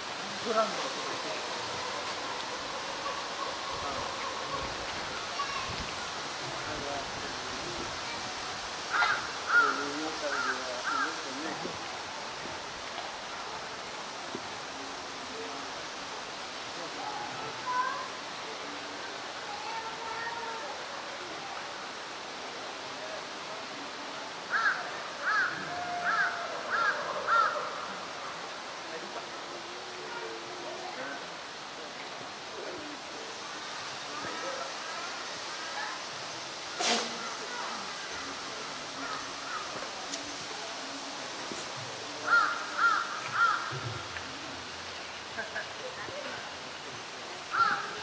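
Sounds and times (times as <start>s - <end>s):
crow cawing: 8.9s - 11.2s, 24.5s - 27.8s, 42.2s - 43.8s, 47.5s - 47.9s.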